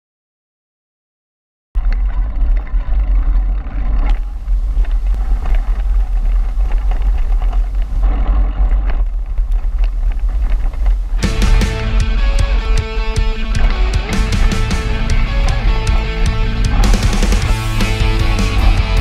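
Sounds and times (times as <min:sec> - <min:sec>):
wind rumble on microphone: 0:01.8 - 0:11.2
bike clicks and rattles: 0:01.8 - 0:19.0
bike tyres on dirt: 0:01.8 - 0:19.0.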